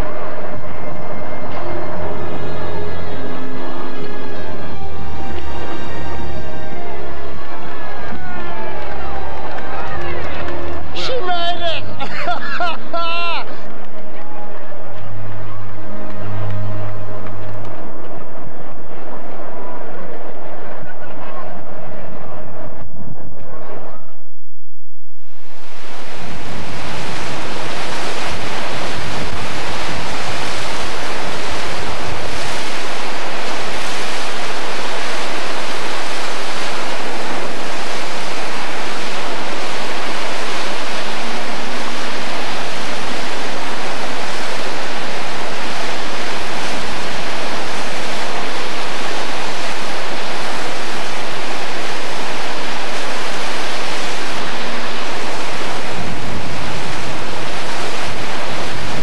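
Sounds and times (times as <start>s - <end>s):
steady rushing hiss: 25.4s - 59.0s.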